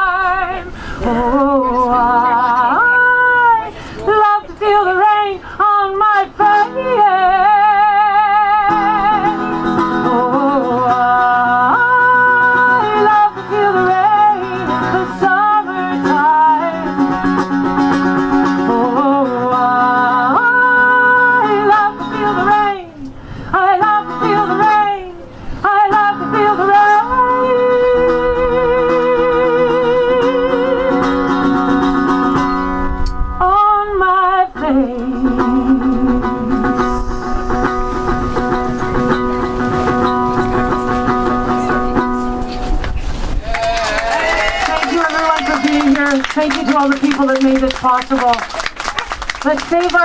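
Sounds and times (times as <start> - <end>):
woman singing wordlessly: 0.0 - 17.4, 18.4 - 31.6, 33.4 - 36.9
mandolin strummed and plucked: 6.4 - 22.8, 25.7 - 33.4, 34.4 - 43.3.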